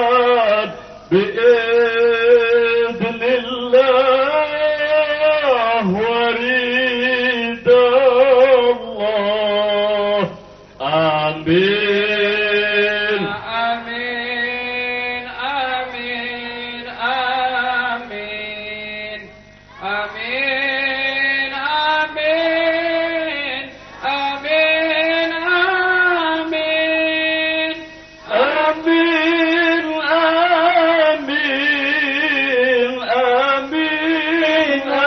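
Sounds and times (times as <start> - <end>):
person chanting through loudspeakers: 0.0 - 35.0.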